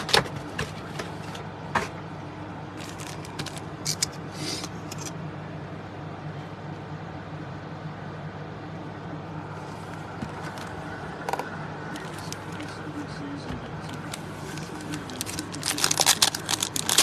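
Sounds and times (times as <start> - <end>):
low room hum: 0.0 - 17.0
card packs crinkling: 2.8 - 4.1, 11.9 - 12.7, 13.8 - 17.0.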